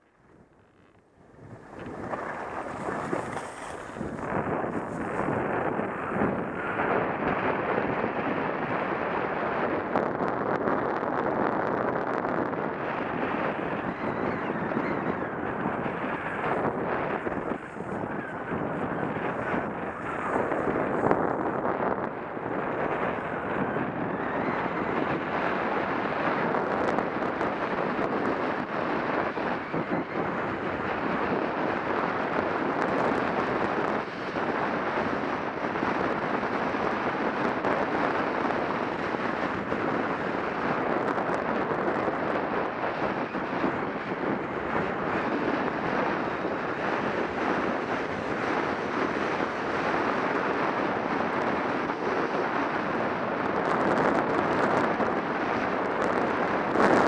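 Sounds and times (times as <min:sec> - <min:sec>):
wind rushing over microphone: 0:00.0 - 0:57.0
skis hissing and scraping on snow: 0:01.4 - 0:06.1.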